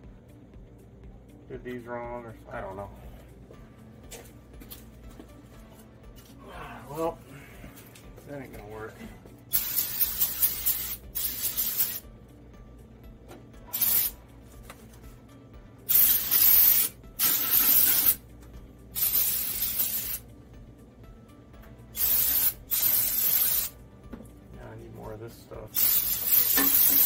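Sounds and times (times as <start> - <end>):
aerosol can spraying: 9.5 - 12.1, 13.7 - 14.2, 15.9 - 18.2, 19.0 - 20.2, 21.9 - 23.8, 25.8 - 27.0.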